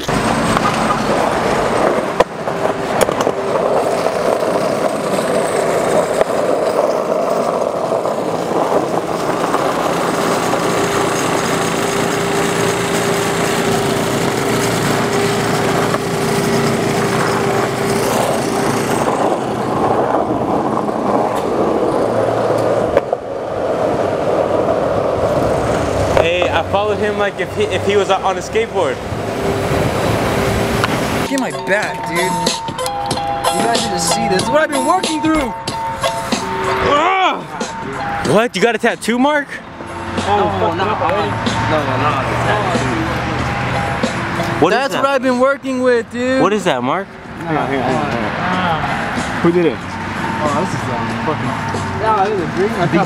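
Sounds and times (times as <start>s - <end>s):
skateboard wheels rumbling on asphalt: 0.0s - 37.2s.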